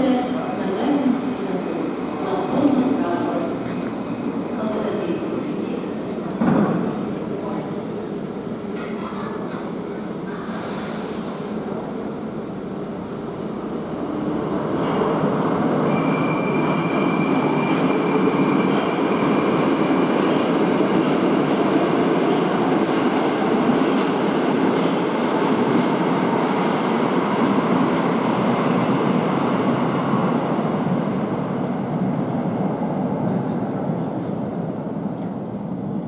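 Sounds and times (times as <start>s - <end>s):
metro train rumbling: 0.0s - 36.0s.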